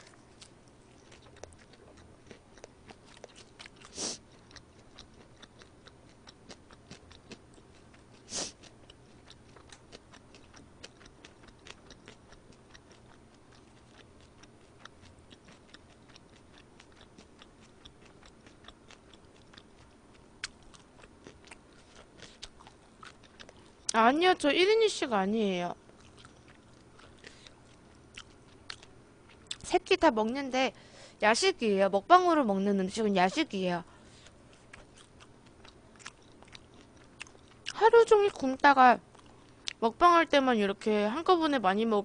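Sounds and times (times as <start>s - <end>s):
chewing: 0.0s - 24.0s, 25.8s - 29.7s, 34.0s - 38.4s, 39.1s - 39.8s.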